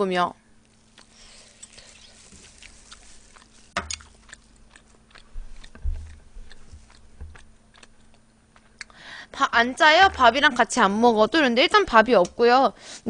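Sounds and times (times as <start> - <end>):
person chewing food: 0.6 - 9.0
wet mouth clicks: 2.6 - 9.0
low thumps: 5.3 - 7.4.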